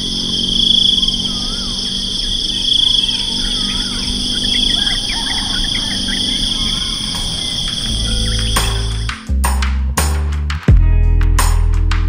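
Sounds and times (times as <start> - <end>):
bird chirps: 0.0 - 9.2
insect chorus shrill drone: 0.0 - 9.2.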